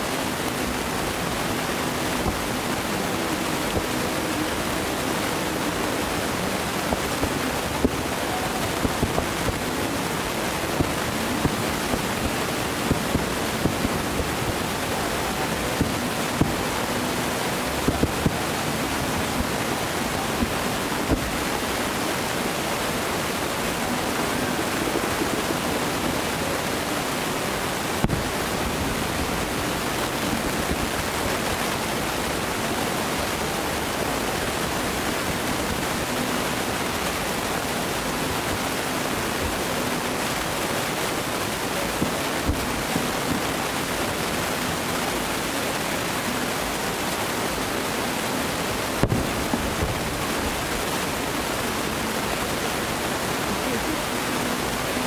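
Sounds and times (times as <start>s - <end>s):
outdoor hiss: 0.0s - 55.0s
distant fireworks pops: 49.0s - 50.0s.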